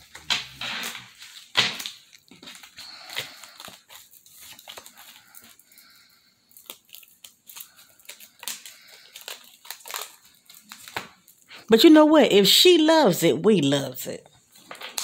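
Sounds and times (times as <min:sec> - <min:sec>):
paper cards rustling: 0:00.0 - 0:11.5.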